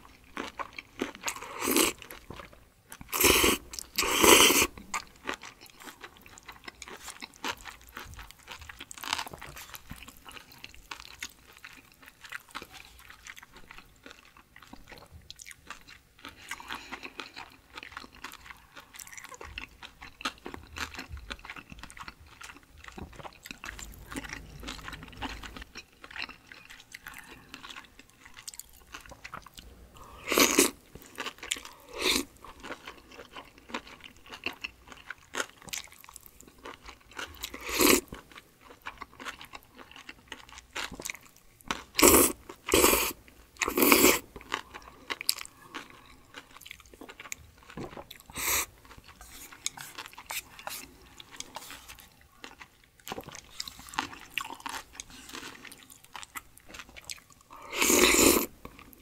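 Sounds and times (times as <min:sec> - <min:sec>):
person chewing: 0:00.0 - 0:59.0
person slurping noodles: 0:01.3 - 0:02.0, 0:03.1 - 0:04.8, 0:30.0 - 0:30.8, 0:37.5 - 0:38.1, 0:42.0 - 0:44.2, 0:48.3 - 0:48.7, 0:57.5 - 0:58.5.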